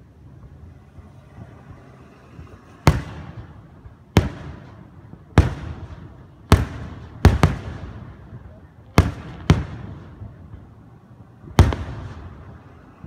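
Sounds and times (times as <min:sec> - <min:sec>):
firework shells booming: 0:02.8 - 0:10.8, 0:11.4 - 0:12.8.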